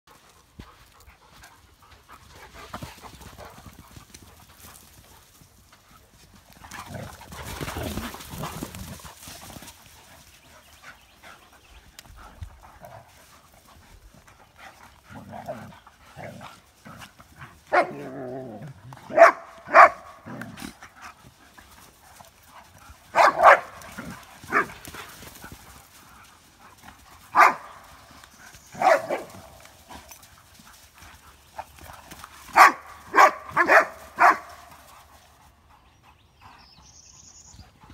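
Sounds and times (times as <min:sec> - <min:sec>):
dogs barking sharply: 0:17.7 - 0:18.2, 0:19.1 - 0:20.6, 0:23.1 - 0:24.8, 0:27.3 - 0:27.8, 0:28.7 - 0:29.6, 0:32.5 - 0:34.7
dog growling: 0:17.7 - 0:18.9.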